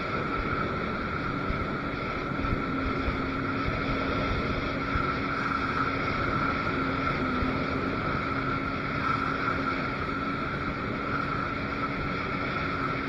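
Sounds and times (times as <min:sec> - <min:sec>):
jet ski engine running: 0:00.0 - 0:13.0.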